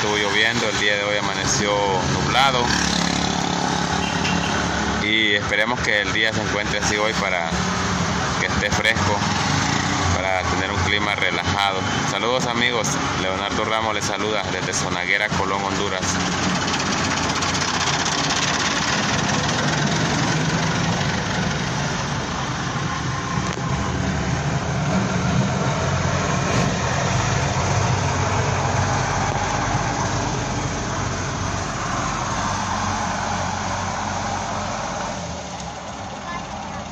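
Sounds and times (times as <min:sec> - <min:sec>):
heavy vehicle engine rumbling: 0:00.0 - 0:36.9
road noise: 0:00.0 - 0:36.9.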